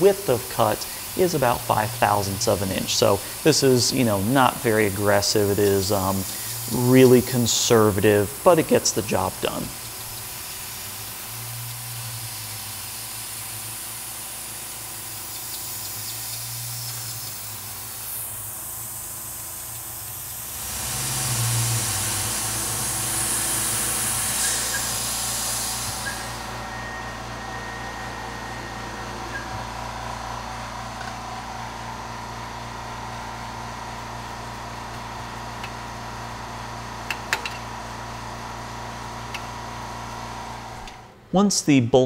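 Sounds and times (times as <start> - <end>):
air nozzle hissing: 0.0 - 27.4
faint steady whine: 0.0 - 32.8
mill cutting steel: 0.0 - 41.1
low machine hum: 0.0 - 41.3.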